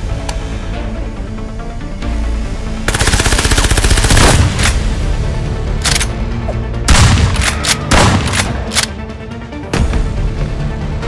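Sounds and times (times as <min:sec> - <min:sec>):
action background music: 0:00.0 - 0:11.0
rapid gunfire: 0:02.9 - 0:04.7
single gunshots: 0:06.9 - 0:08.7.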